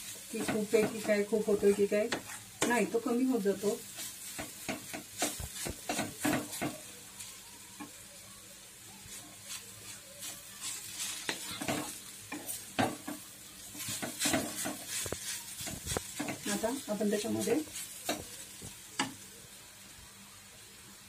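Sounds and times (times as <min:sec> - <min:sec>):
spatula scraping pan: 0:00.0 - 0:02.9, 0:03.6 - 0:07.3, 0:09.3 - 0:18.6
soft frying sizzle: 0:00.0 - 0:21.0.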